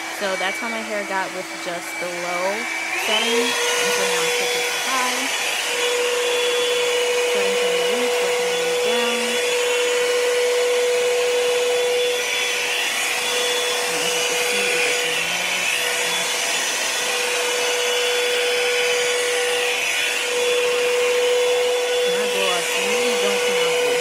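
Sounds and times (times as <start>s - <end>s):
hair dryer brush motor hum: 0.0s - 24.0s.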